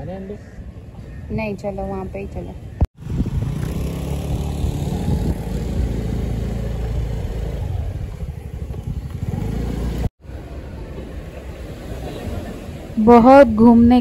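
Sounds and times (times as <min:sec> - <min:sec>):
motorbike engine running: 0:03.0 - 0:10.1.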